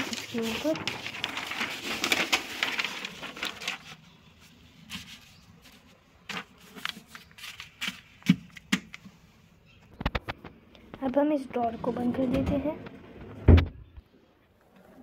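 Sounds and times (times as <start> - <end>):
newspaper rustling and crinkling: 0.0 - 9.0.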